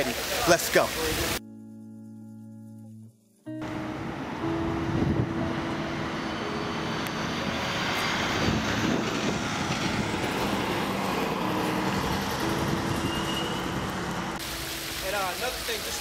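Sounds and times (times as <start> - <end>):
heavy vehicle engine passing: 3.6 - 14.4
city traffic noise: 3.6 - 16.0.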